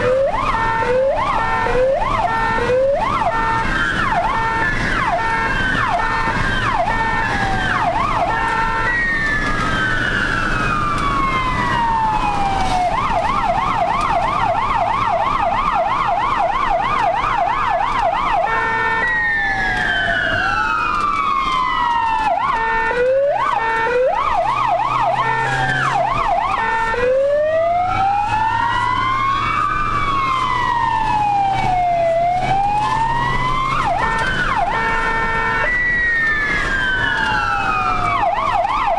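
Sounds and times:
ambulance siren: 0.0 - 38.9
vehicle engine droning: 0.0 - 38.9.

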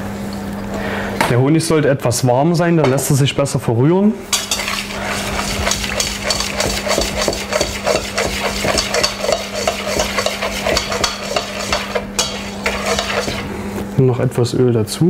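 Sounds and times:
whisk scraping and clinking in bowl: 4.3 - 13.6.

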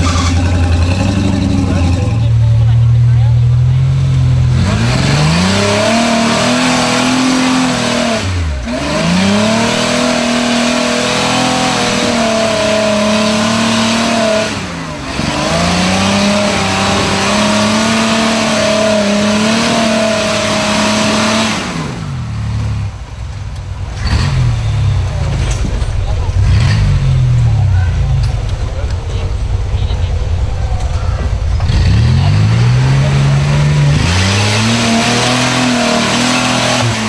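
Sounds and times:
engine revving hard: 0.0 - 23.0, 23.9 - 37.0.

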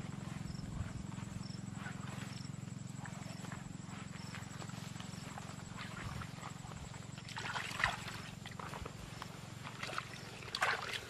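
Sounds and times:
mud squelching: 4.0 - 11.0
small water splashes: 7.1 - 8.9, 9.6 - 11.0.

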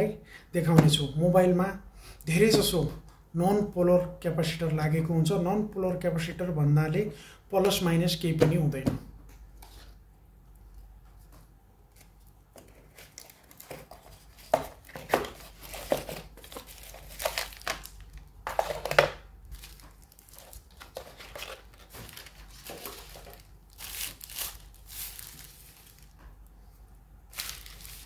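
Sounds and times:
plastic wrapping crinkling: 12.2 - 26.5, 27.3 - 28.0.

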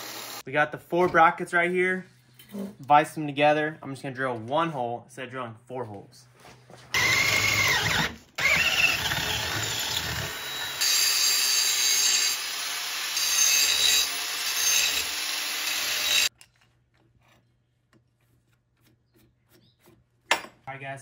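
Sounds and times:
angle grinder grinding steel: 0.0 - 0.4, 7.0 - 16.3
drill motor whine: 0.0 - 0.4, 7.0 - 16.3.

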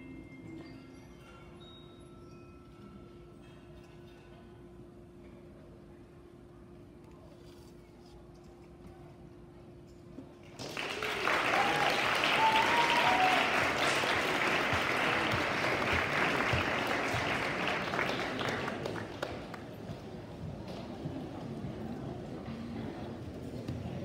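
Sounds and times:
audience applause: 10.6 - 19.8
short cheers: 10.7 - 15.4.

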